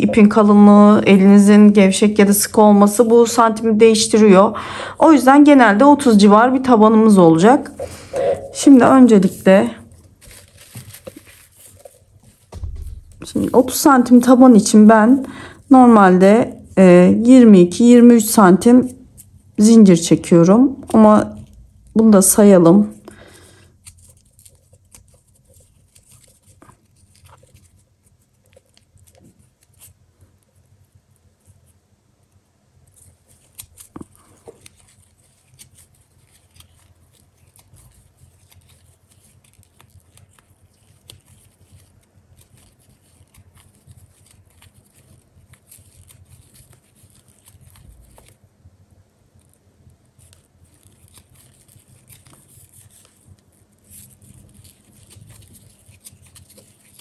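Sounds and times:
low steady hum: 0.0s - 5.4s, 6.1s - 23.4s
paper yarn rustling: 5.7s - 48.5s, 49.2s - 57.0s.

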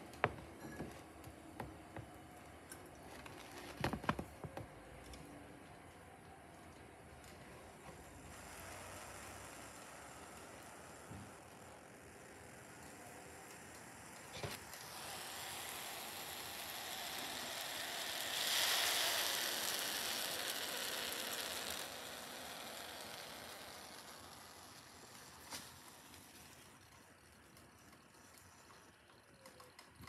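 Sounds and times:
soft sizzling hiss: 7.1s - 29.0s.

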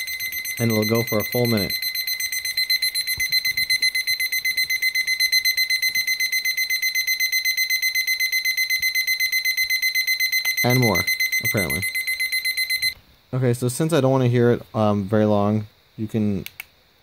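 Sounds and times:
rapid electronic alarm beeps: 0.0s - 13.0s.

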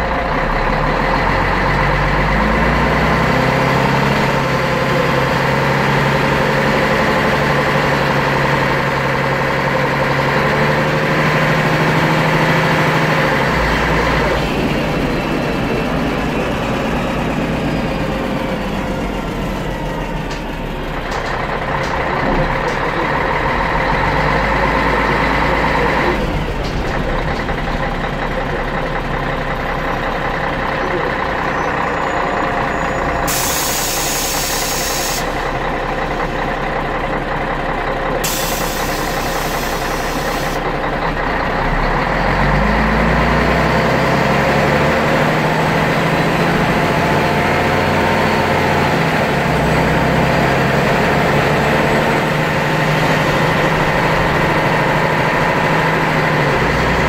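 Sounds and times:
bus diesel engine running: 0.0s - 57.0s.

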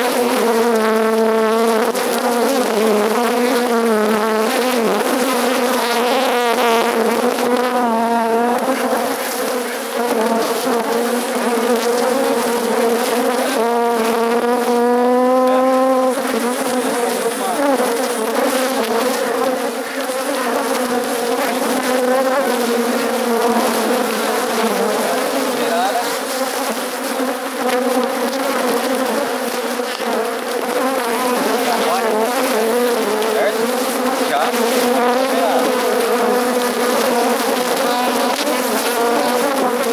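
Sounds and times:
honeybees buzzing: 0.0s - 39.9s.

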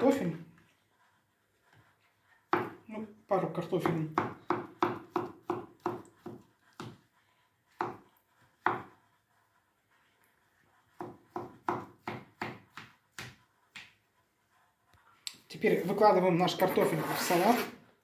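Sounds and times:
knife chopping on cutting board: 2.5s - 2.8s, 3.7s - 7.0s, 7.8s - 8.0s, 8.6s - 8.9s, 11.0s - 14.0s.

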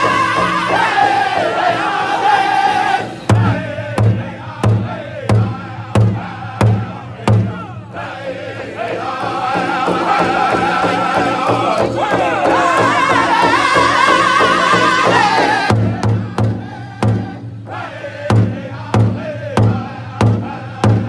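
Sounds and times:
group singing: 0.0s - 21.0s
large drum beats: 0.0s - 21.0s.

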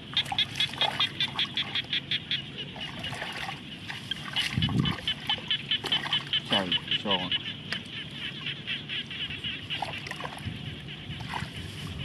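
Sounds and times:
water splashing: 0.0s - 7.2s, 9.7s - 12.0s.

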